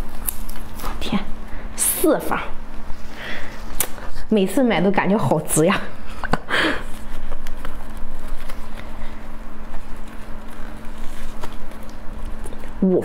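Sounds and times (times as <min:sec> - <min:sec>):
plastic glove rustling: 0:00.0 - 0:01.5, 0:06.7 - 0:13.0
steady low hum: 0:00.0 - 0:13.0.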